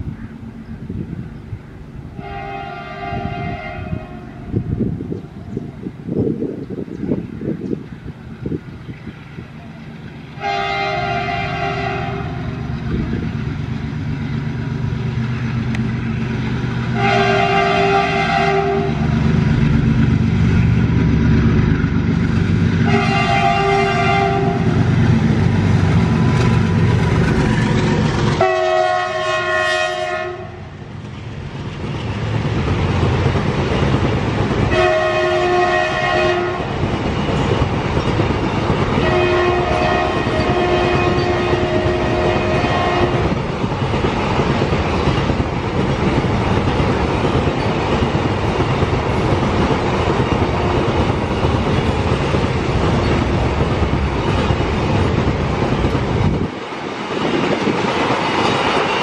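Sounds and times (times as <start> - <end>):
train rumble: 0.0 - 59.0
locomotive horn blasts: 2.2 - 4.6, 10.4 - 12.6, 16.9 - 19.1, 22.8 - 24.9, 28.4 - 30.7, 34.7 - 36.7, 39.0 - 43.4
wagons clickety-clack on rails: 9.5 - 28.7, 30.8 - 59.0.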